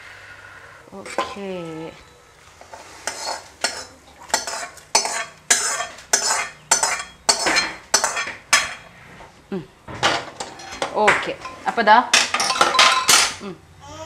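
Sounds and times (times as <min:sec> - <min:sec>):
metal spatula scraping pan: 0:02.6 - 0:09.0.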